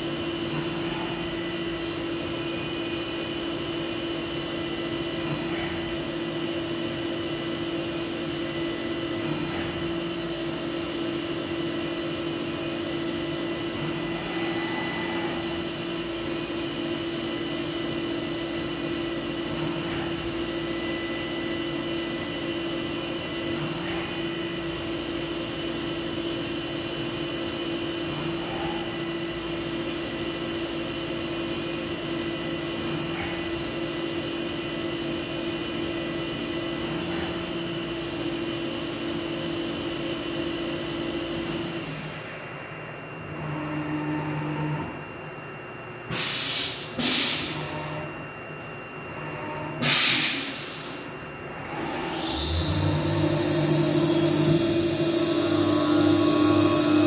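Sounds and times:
milling machine cutting metal: 51.8s - 57.0s.

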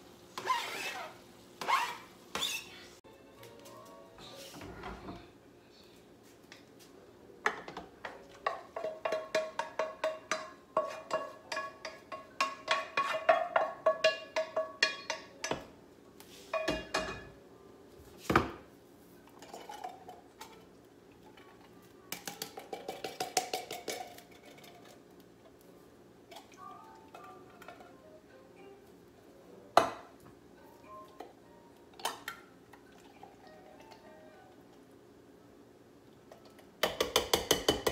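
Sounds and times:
spatula knocking in frying pan: 8.4s - 15.7s, 36.8s - 37.9s.

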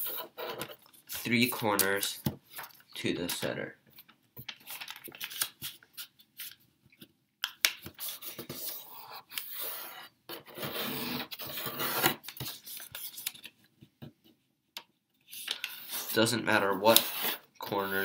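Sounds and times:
paper rustling and crinkling: 0.0s - 6.6s.

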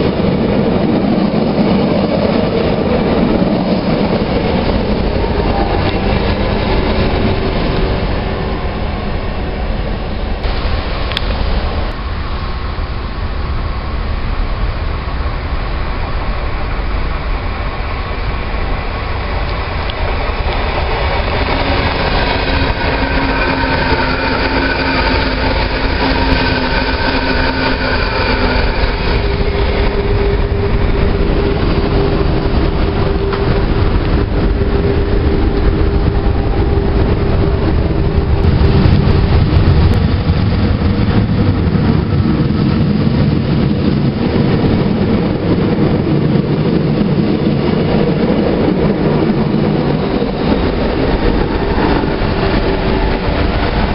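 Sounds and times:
train wheels rumbling on rails: 0.0s - 53.9s
electric train motor whine: 18.7s - 41.7s.

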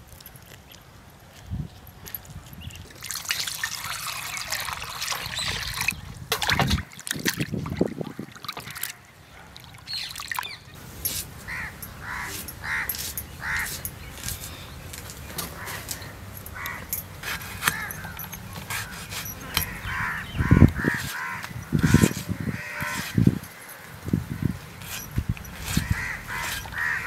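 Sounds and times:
hands sloshing water in pot: 2.9s - 14.4s
crow cawing: 11.4s - 13.7s, 15.5s - 16.9s, 19.6s - 23.7s, 25.8s - 27.0s.

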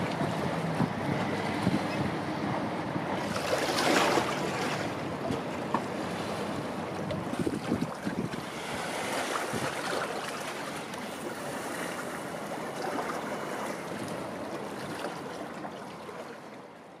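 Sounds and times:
wind buffeting microphone: 0.0s - 10.1s.

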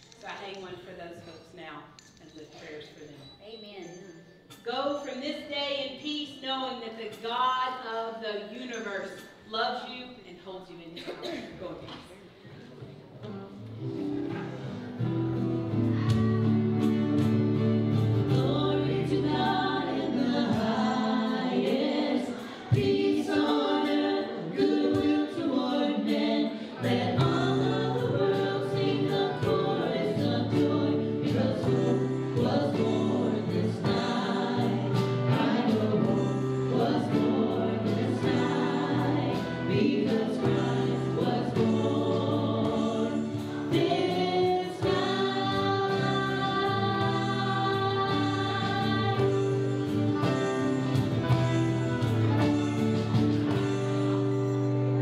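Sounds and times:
strummed acoustic guitars: 13.3s - 55.0s
keyboard: 13.6s - 55.0s
people singing: 15.7s - 54.8s
steady drum beat: 26.8s - 53.9s.

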